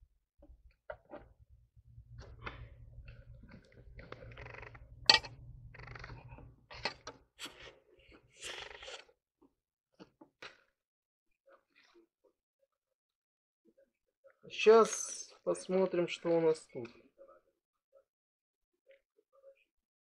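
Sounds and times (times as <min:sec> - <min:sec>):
scraping: 0:01.9 - 0:07.6.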